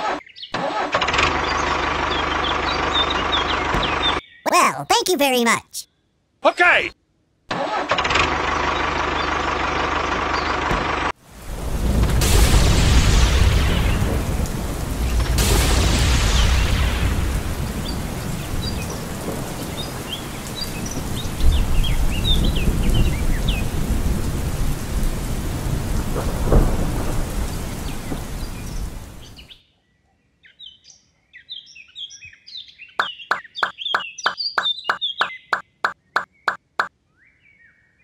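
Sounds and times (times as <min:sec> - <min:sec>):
steady rain: 0:11.2 - 0:29.5
low thunder rumbles: 0:11.4 - 0:29.2
birds chirping: 0:33.0 - 0:36.9.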